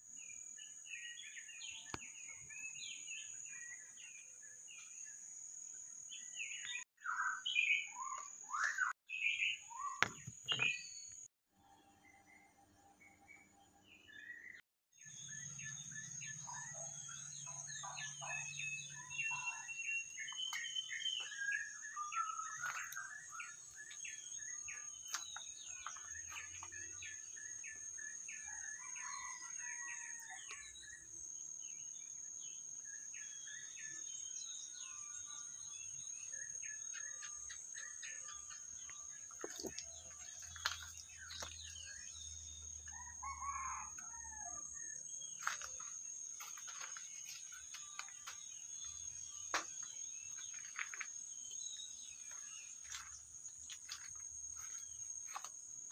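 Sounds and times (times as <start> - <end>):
small birds chirping: 14.2 - 28.2, 31.8 - 55.9.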